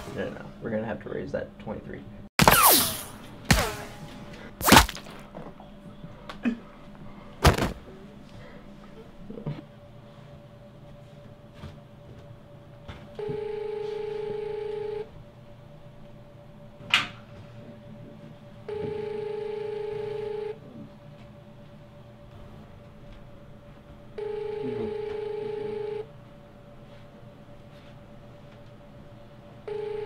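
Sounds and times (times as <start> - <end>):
telephone ringback tone: 13.2 - 15.1, 18.7 - 20.6, 24.2 - 26.1, 29.7 - 30.0.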